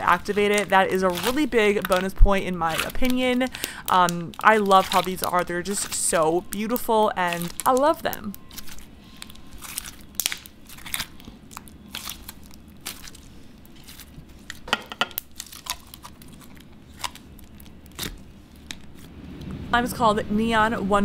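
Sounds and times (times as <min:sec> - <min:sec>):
slime popping and crackling: 0:00.0 - 0:14.6, 0:15.2 - 0:19.0.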